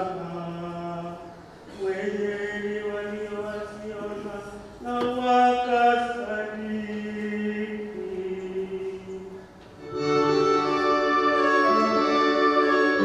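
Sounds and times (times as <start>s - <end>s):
keyboard playing: 9.8s - 13.0s.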